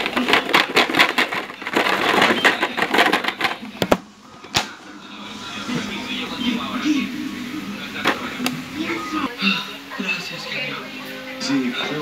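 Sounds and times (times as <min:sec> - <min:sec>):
hard plastic crackling and clattering: 0:00.0 - 0:04.9.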